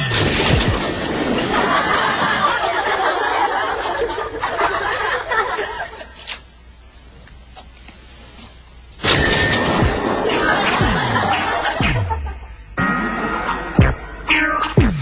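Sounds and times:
crowd laughing: 0.8 - 6.2, 9.8 - 14.3.

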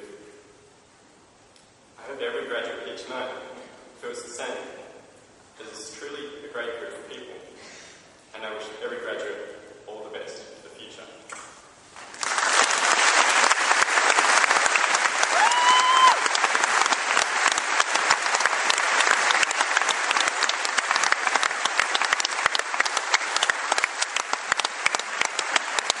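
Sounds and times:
audience applause: 12.0 - 26.0.

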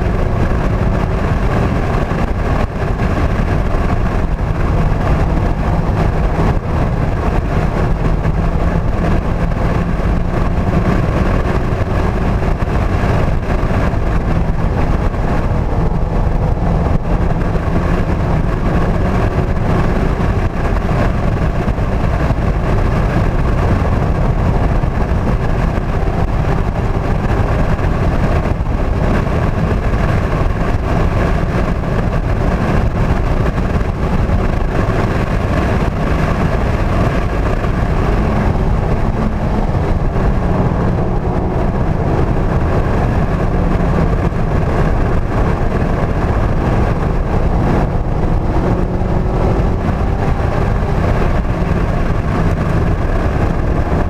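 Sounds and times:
car engine running hard: 0.0 - 54.0
road and tyre rumble: 0.0 - 54.0.

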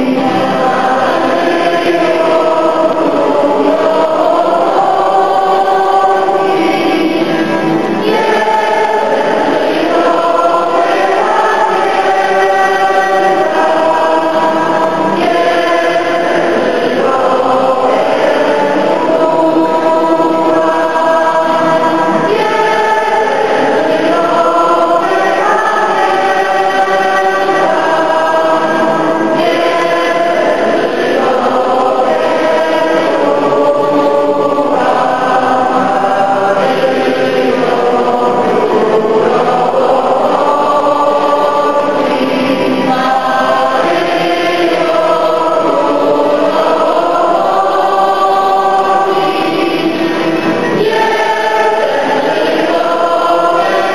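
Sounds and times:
congregation singing a hymn: 0.0 - 53.9.

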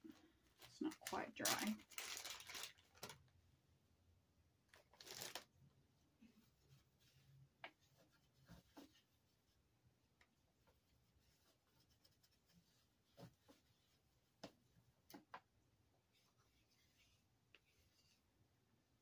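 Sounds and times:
soft rubbing: 6.0 - 14.8, 16.0 - 18.6.

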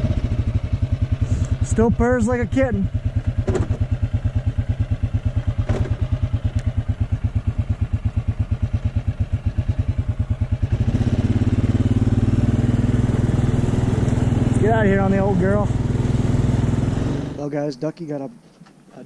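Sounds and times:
quad bike engine idling: 0.0 - 17.5.

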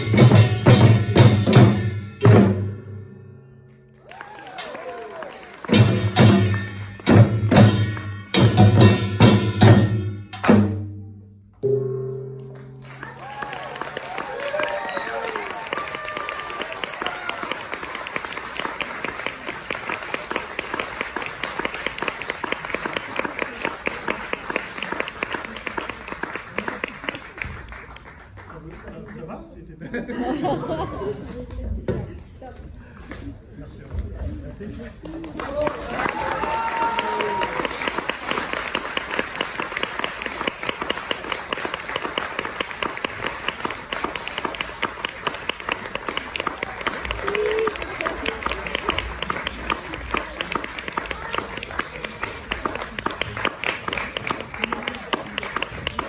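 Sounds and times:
audience applauding: 4.0 - 7.1, 12.6 - 29.5, 34.9 - 56.0.

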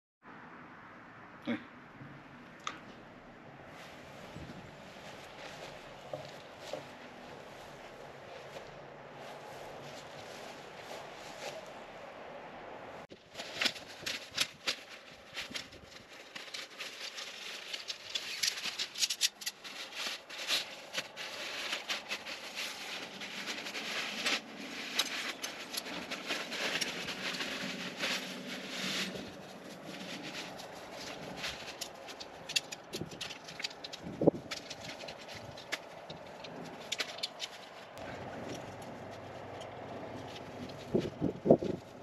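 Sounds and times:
rustling hiss: 13.1 - 42.0.

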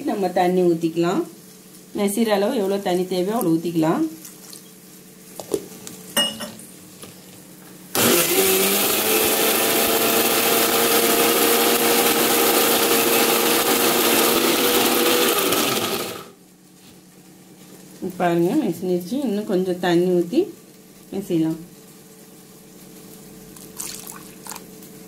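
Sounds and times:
mixer grinder humming: 7.9 - 16.4.

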